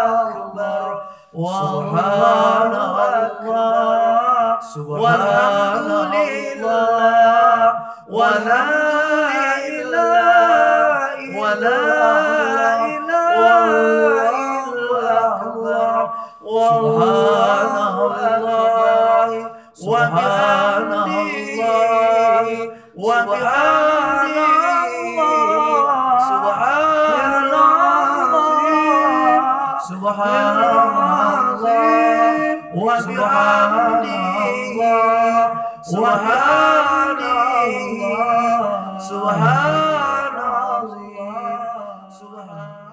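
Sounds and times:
man chanting unaccompanied: 0.0s - 42.9s.

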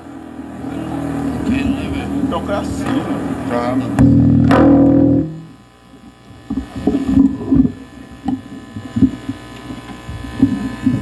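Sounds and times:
distorted band chord: 0.0s - 5.8s
amplified instrument rumbles and knocks: 2.6s - 5.6s.

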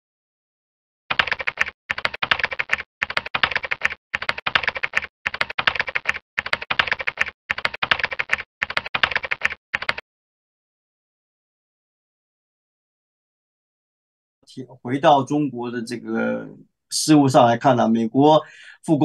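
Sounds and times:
computer keyboard typing: 1.1s - 10.0s.

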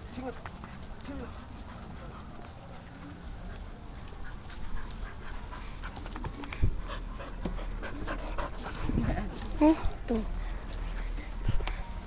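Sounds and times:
dogs fighting and scuffling: 0.0s - 12.0s.

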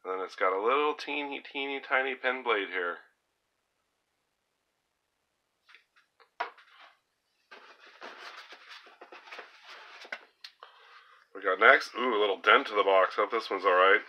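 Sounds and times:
rustling: 5.6s - 11.2s.

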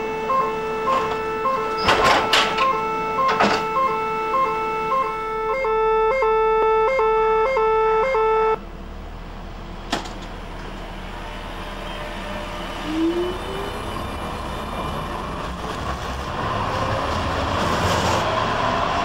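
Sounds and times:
two-tone door warning beeps: 0.0s - 8.6s
street noise: 0.0s - 19.0s.

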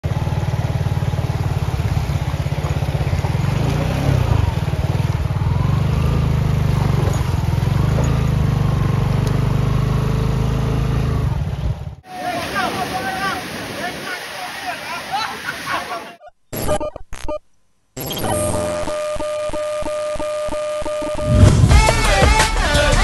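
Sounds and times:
motorcycle engine throbbing: 0.0s - 12.1s, 21.1s - 22.4s.

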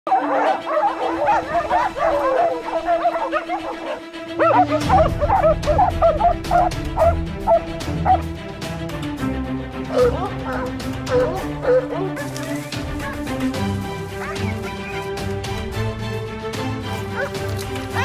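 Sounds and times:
dogs baying and yelping: 0.1s - 8.3s, 9.9s - 15.1s, 17.1s - 18.0s
background music: 0.1s - 18.0s.

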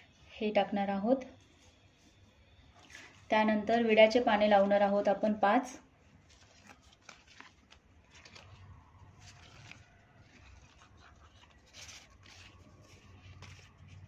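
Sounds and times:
faint leaf rustles: 6.1s - 14.0s.

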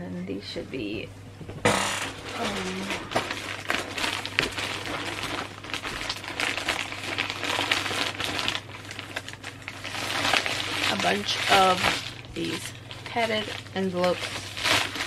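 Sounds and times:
plastic packaging crinkling: 1.7s - 15.0s.

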